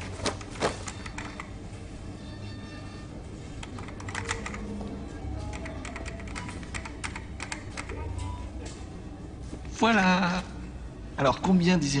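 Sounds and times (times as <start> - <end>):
faint background music: 0.0 - 12.0
computer keyboard typing: 0.9 - 1.5, 3.6 - 4.8, 5.4 - 8.1.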